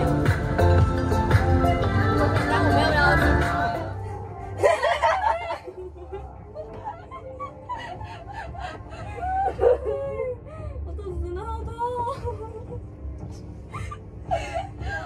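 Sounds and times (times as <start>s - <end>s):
low steady rumble: 0.0s - 15.0s
women giggling: 4.6s - 10.4s.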